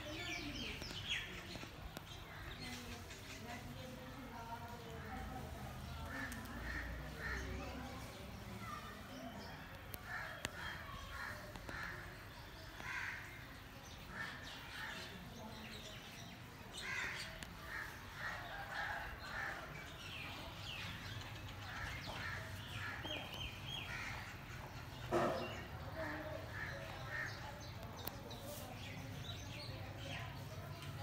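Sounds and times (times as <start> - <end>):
crows cawing: 12.8 - 13.4.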